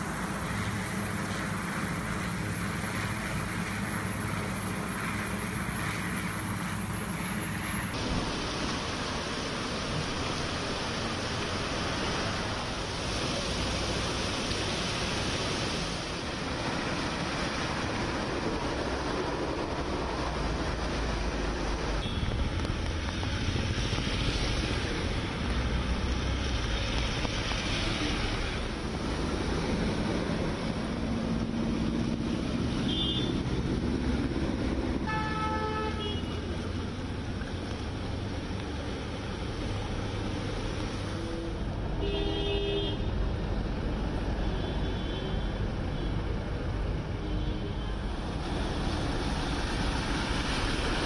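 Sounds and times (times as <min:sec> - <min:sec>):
rush of vehicles and water: 0:00.0 - 0:51.0
vehicle horns tooting: 0:32.8 - 0:33.3, 0:35.1 - 0:36.4.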